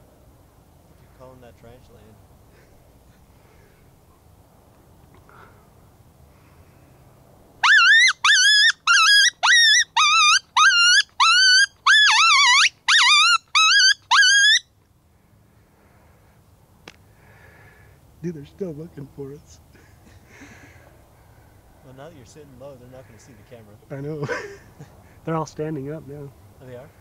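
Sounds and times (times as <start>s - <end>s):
coyote call yips: 7.6s - 14.7s.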